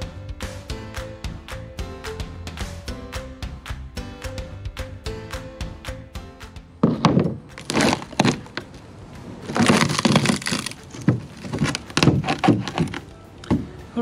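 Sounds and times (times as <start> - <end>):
wood and fiberglass cracking: 6.8 - 13.1.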